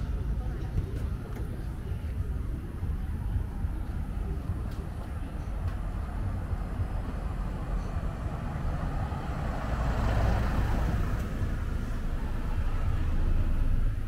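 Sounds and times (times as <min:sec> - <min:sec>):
low traffic rumble: 0:00.0 - 0:14.0
car passing by: 0:05.7 - 0:14.0.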